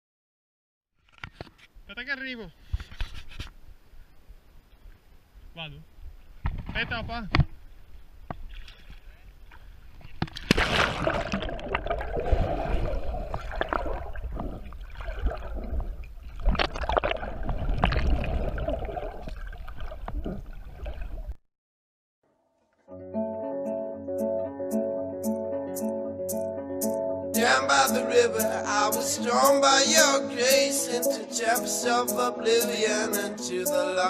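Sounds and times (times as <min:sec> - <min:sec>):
underwater gurgling and sloshing: 0:08.4 - 0:21.4
splash into water: 0:10.2 - 0:21.2
acoustic guitar music: 0:22.8 - 0:34.0.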